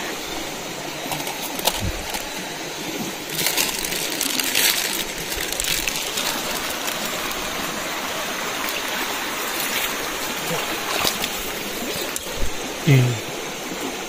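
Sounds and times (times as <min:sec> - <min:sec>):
river water running: 0:00.0 - 0:14.0.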